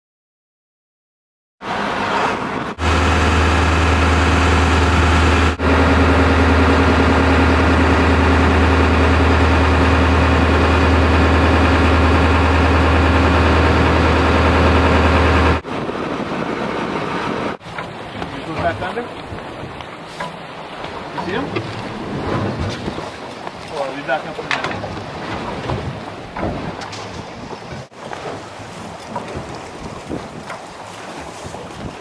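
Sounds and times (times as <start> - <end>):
boat engine humming: 1.6 - 32.0.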